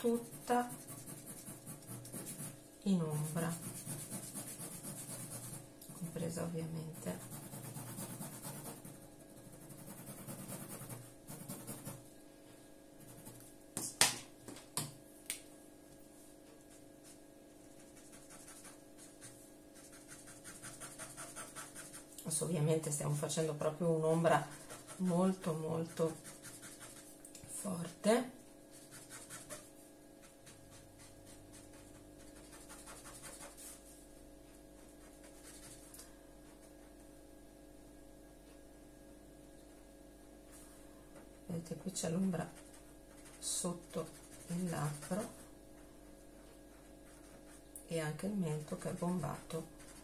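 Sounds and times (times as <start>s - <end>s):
pen scratching on paper: 0.0s - 6.2s, 6.9s - 12.0s, 13.0s - 13.4s, 17.8s - 22.1s, 24.1s - 27.1s, 28.7s - 29.7s, 30.4s - 33.8s, 34.8s - 35.9s, 42.4s - 45.4s, 46.7s - 47.6s, 48.5s - 50.0s.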